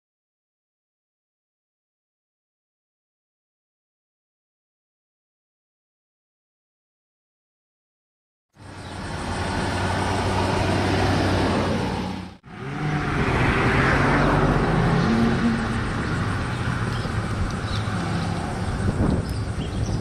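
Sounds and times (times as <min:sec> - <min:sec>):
road traffic: 0:08.6 - 0:20.0
vehicle engine humming: 0:08.6 - 0:20.0.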